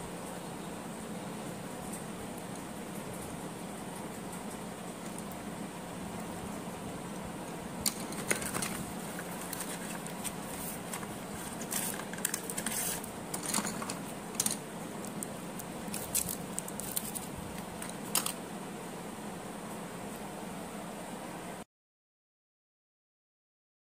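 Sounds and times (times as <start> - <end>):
pencils clicking and rustling: 7.8 - 18.4.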